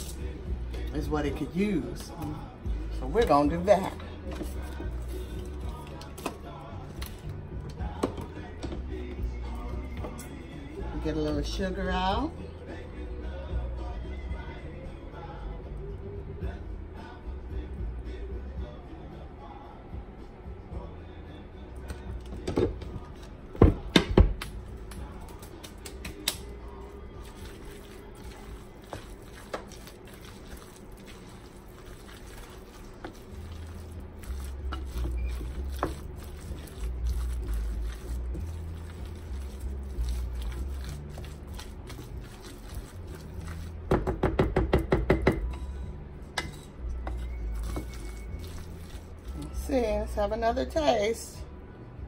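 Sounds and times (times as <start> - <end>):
wooden spoon stirring in bowl: 0.0 - 10.4, 26.8 - 44.6, 46.4 - 50.2
background music with bass line: 0.0 - 52.0.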